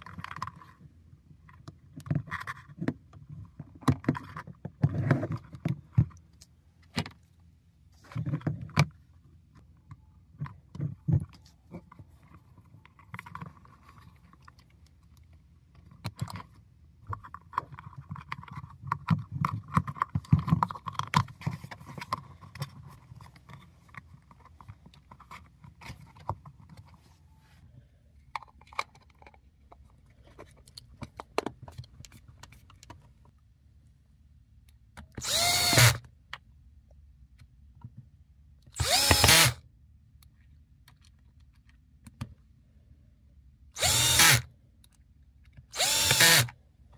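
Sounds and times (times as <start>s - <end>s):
knocks and clicks of parts handled: 1.4s - 7.3s, 28.2s - 33.4s, 40.3s - 42.5s
cordless drill driving screws: 35.2s - 36.0s, 38.8s - 39.6s, 43.8s - 44.4s, 45.7s - 46.5s.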